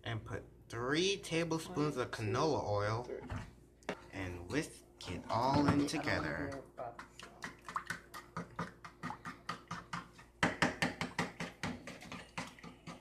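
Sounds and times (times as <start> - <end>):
whisk knocking against bowl: 5.4 - 13.0.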